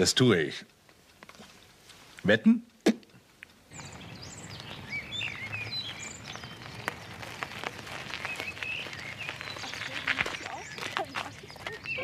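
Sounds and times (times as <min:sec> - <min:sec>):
small birds chirping: 0:03.5 - 0:12.0.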